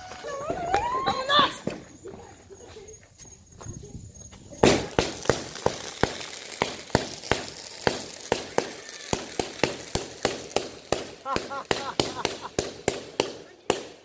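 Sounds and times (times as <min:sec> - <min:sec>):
firecrackers cracking: 0:04.4 - 0:14.0
firecracker loud bang: 0:04.6 - 0:14.0.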